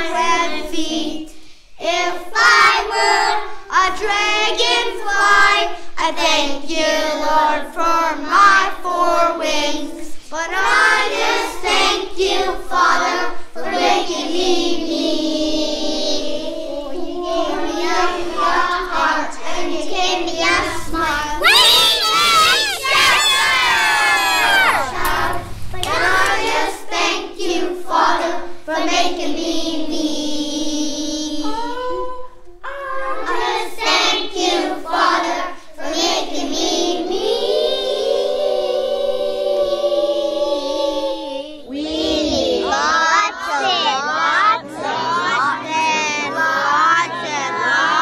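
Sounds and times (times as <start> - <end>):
children singing: 0.0 - 48.0
children shouting: 20.4 - 26.7.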